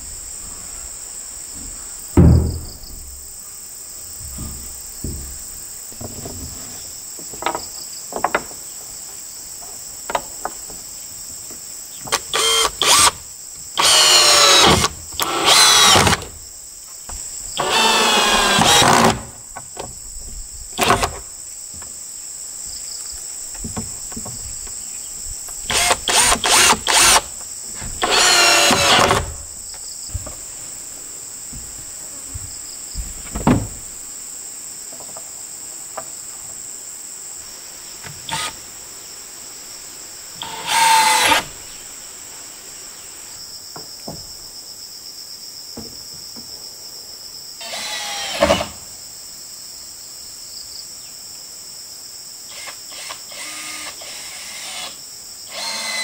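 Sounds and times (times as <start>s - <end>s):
insects chirping: 0.0s - 56.0s
power drill running in bursts: 13.8s - 16.2s, 25.7s - 27.2s, 28.0s - 29.3s, 40.4s - 41.5s, 55.5s - 56.0s.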